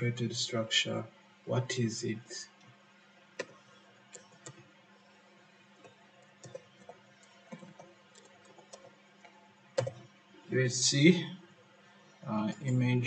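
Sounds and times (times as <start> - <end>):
typing on a computer keyboard: 3.4 - 4.6, 5.8 - 9.0, 9.8 - 10.1.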